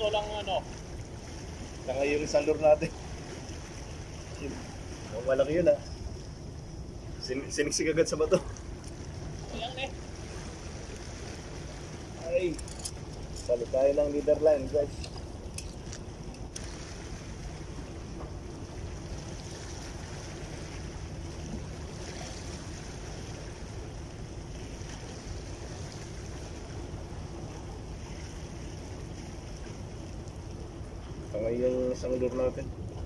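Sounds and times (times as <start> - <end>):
sea washing against rocks: 7.2 - 30.4.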